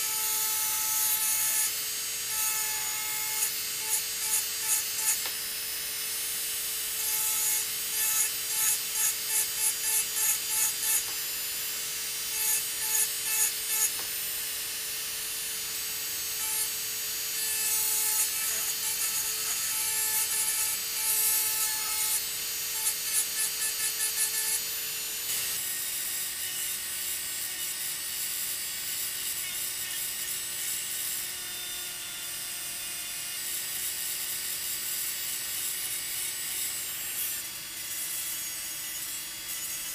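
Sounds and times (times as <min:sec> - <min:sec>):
engraving motor whine: 0:00.0 - 0:27.8.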